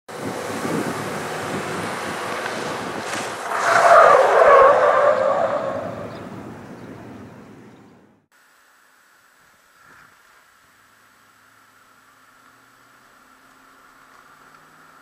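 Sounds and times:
car driving in reverse: 0.1s - 6.9s, 11.1s - 15.0s
tyres squealing: 2.3s - 6.3s.

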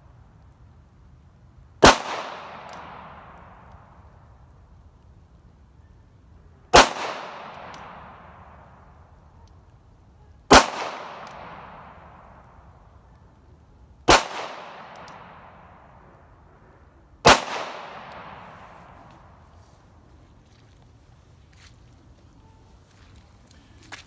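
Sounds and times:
pistol shots with echo: 1.8s - 3.7s, 6.7s - 8.7s, 10.5s - 12.4s, 14.1s - 16.1s, 17.2s - 19.3s.

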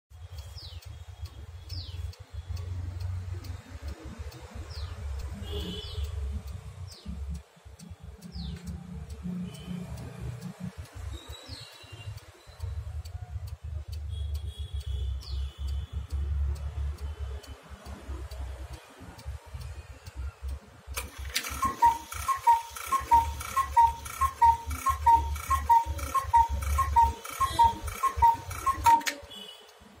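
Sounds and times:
clock ticking: 0.1s - 30.0s
bird chirping: 0.2s - 2.8s, 21.1s - 29.6s
cuckoo clock two-note calls: 21.0s - 29.6s.

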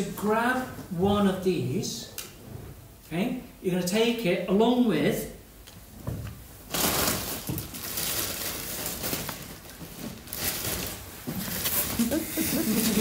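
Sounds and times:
paper rustling and crinkling: 6.7s - 13.0s.

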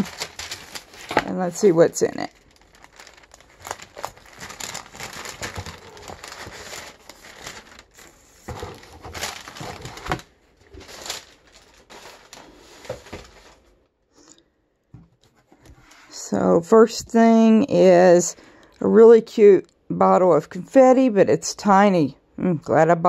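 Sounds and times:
tissue paper rustling: 0.0s - 13.8s.

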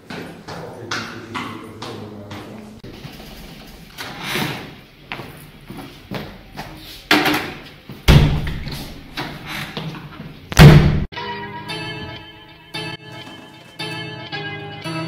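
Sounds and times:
heavy thuds and bangs: 7.1s - 9.5s, 10.5s - 11.1s
music: 11.1s - 15.0s.

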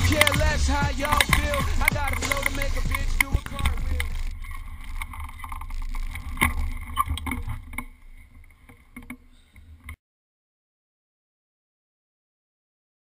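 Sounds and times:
bike rolling over pavement: 0.0s - 9.0s
bike knocks and rattles: 0.0s - 9.2s.

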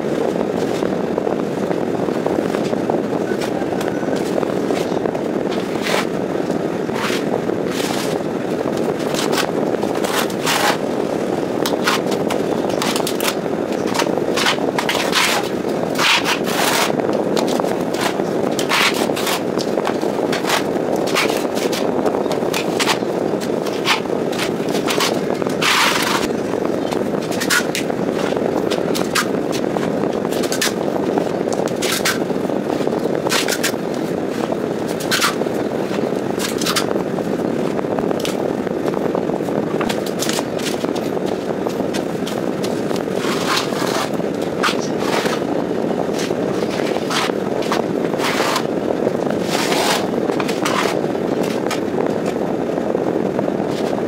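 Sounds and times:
trowel scraping across wall: 43.2s - 45.4s.

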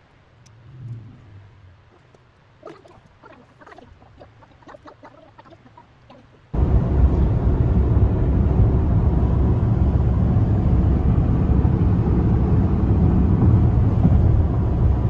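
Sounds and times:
car road and wind noise: 6.6s - 15.0s.

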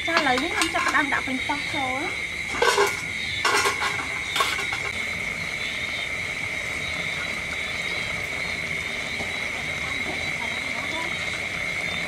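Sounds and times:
constant high-pitched whine: 0.0s - 12.0s
pot boiling and steaming: 0.0s - 12.0s
metal tongs clinking on tray: 0.1s - 1.1s, 2.5s - 4.9s.

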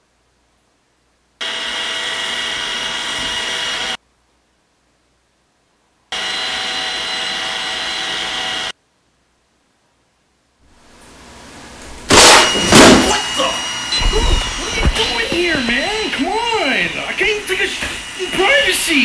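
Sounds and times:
robot vacuum motor whirring: 12.1s - 19.0s.

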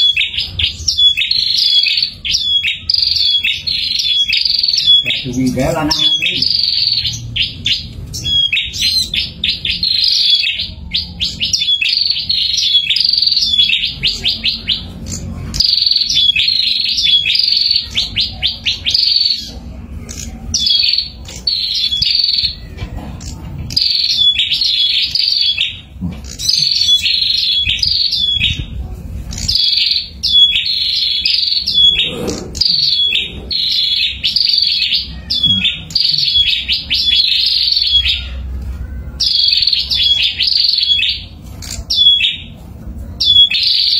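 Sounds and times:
birds chirping: 0.0s - 43.9s.

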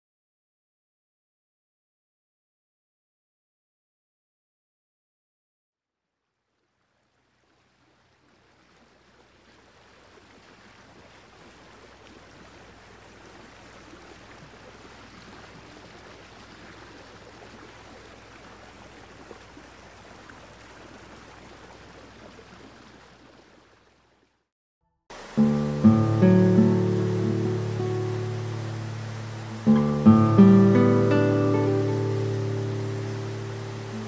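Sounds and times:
rushing water: 6.6s - 24.4s, 25.1s - 34.0s
low steady hum: 25.3s - 34.0s.

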